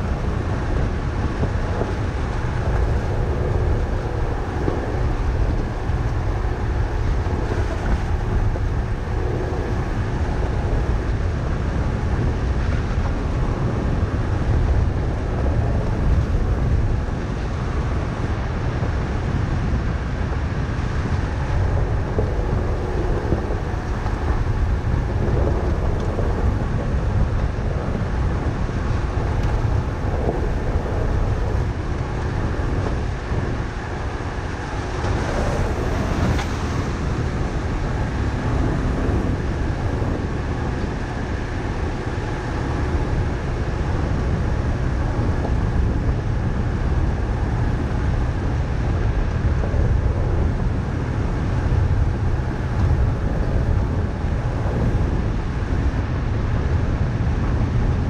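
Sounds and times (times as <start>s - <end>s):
wind noise on microphone: 0.0s - 58.0s
tyres rumbling on gravel: 20.5s - 55.2s.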